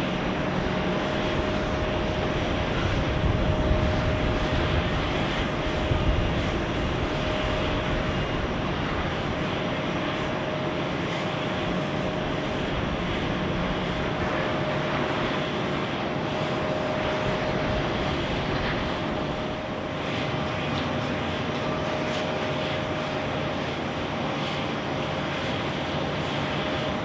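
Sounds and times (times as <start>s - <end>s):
jet engines whining and rushing: 0.0s - 27.0s.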